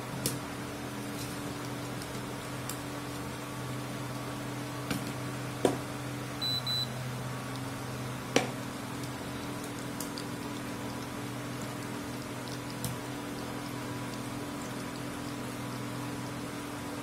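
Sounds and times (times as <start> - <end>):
food deep-frying in oil: 0.0 - 17.0
induction cooktop humming: 0.0 - 17.0
short high beeps: 6.4 - 6.9.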